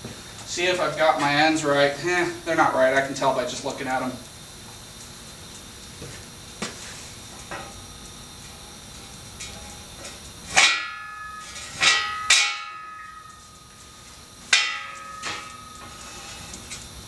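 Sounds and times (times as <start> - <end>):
steel clanking and ringing: 10.5 - 16.1.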